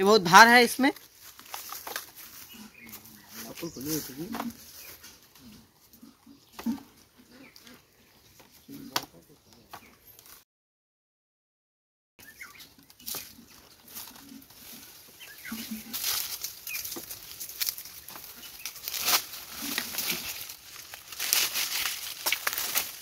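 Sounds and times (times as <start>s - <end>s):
dry palm fronds rustling and crackling: 0.2s - 5.5s, 12.3s - 23.0s.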